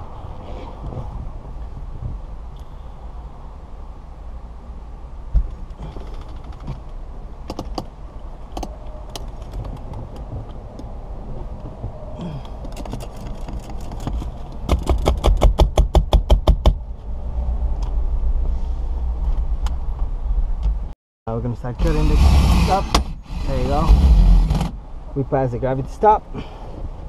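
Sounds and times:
handling clicks and knocks: 5.4 - 10.9, 11.5 - 16.8
low rumble: 16.8 - 25.2.

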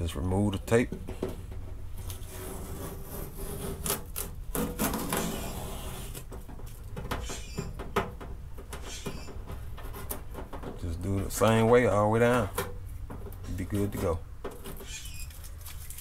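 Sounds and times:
masking tape peeling off: 2.0 - 6.4.

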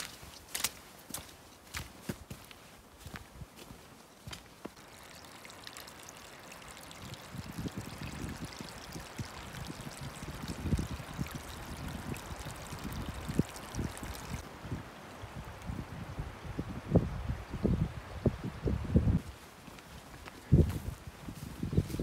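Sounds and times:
creek trickling over stones: 4.2 - 15.9.

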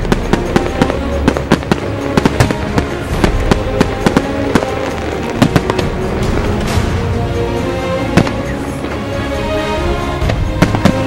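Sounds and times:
fireworks bursting: 0.0 - 7.0, 8.1 - 9.2, 10.2 - 11.0
music playing: 0.0 - 11.0.

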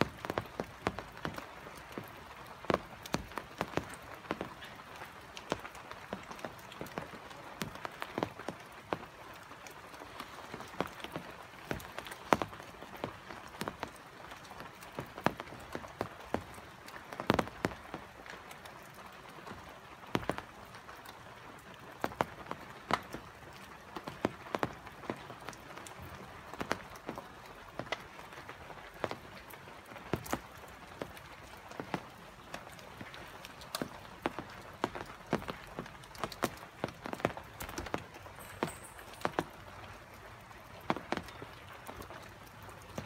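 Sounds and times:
rain hissing: 0.0 - 18.7
raindrops striking close: 0.0 - 43.0.

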